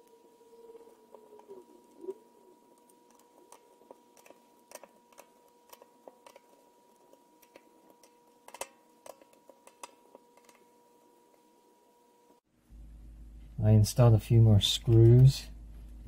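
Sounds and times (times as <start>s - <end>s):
screwdriver clicks and ticks: 7.4s - 10.6s.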